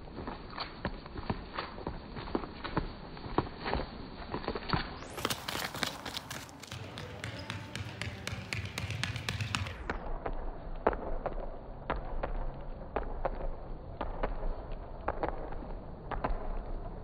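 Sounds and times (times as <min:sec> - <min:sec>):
running footsteps on wet asphalt: 0:00.3 - 0:09.9
running footsteps on hall floor: 0:05.0 - 0:10.0.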